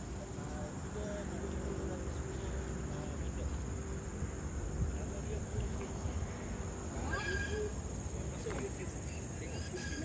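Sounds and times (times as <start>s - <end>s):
brief higher insect call: 0.0s - 10.0s
insects chirping in chorus: 0.0s - 10.0s.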